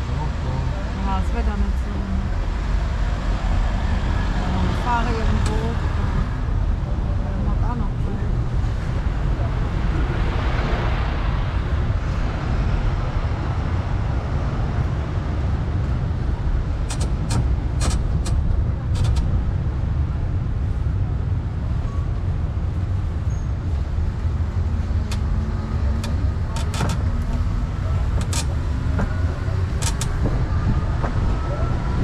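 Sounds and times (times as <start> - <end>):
road train rumbling: 0.0 - 32.0
sharp clicks and rattles: 16.8 - 19.4, 25.0 - 30.4.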